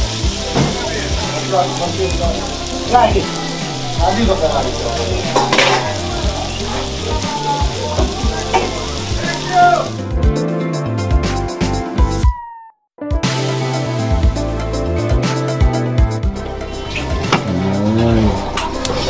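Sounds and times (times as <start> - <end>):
food sizzling in frying pan: 0.0 - 10.1
metal spatula scraping pan: 5.3 - 5.9.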